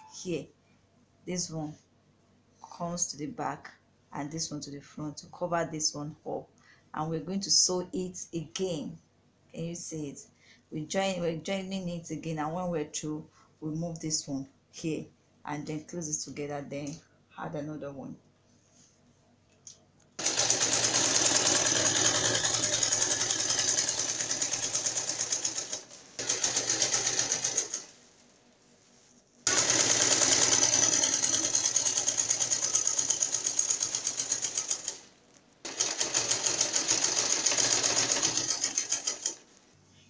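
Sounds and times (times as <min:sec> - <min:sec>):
sewing machine stitching: 0:20.2 - 0:28.0, 0:29.5 - 0:39.4.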